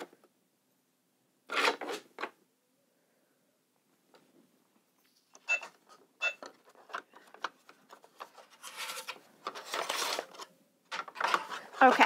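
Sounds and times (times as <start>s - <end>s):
toy cash register beep: 5.4s - 6.4s
plastic card scraping: 5.9s - 12.0s.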